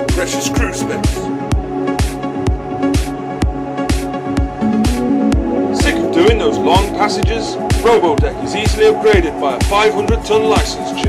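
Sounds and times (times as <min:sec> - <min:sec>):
electronic dance music: 0:02.0 - 0:09.3.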